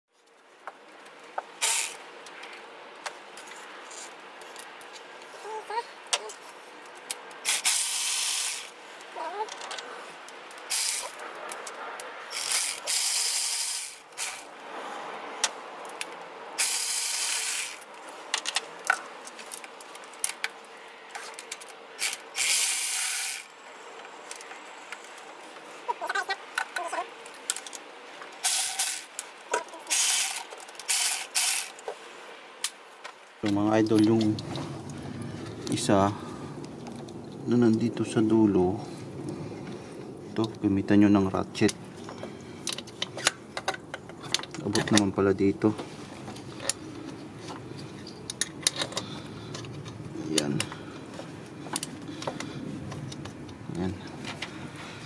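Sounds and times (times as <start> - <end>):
short hissing bursts: 1.6 - 2.0, 7.4 - 8.8, 12.3 - 14.5, 16.6 - 17.8, 22.0 - 23.5, 29.9 - 31.8.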